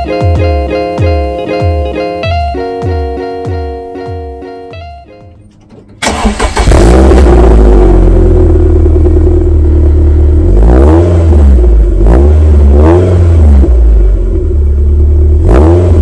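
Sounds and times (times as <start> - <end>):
car engine idling and revving: 5.2 - 16.0.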